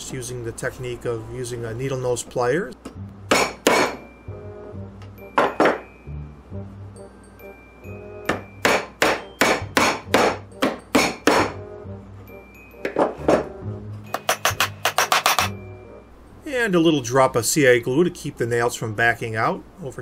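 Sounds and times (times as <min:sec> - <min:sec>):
soft background music: 0:00.0 - 0:20.0
hammer tapping nails: 0:08.3 - 0:11.6, 0:14.1 - 0:15.5.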